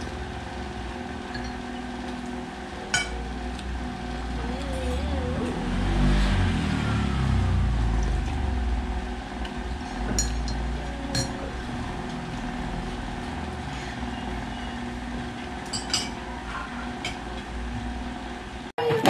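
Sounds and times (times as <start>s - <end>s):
forks clinking against plates: 1.3s - 1.6s, 10.1s - 11.4s, 15.6s - 16.2s
steady low rumble: 3.8s - 13.6s.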